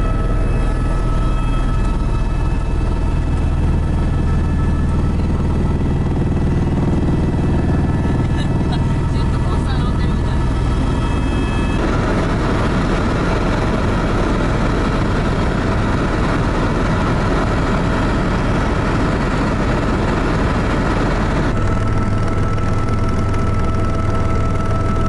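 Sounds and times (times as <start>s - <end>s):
faint high whine: 0.0s - 25.0s
helicopter engine and rotor drone: 0.0s - 25.0s.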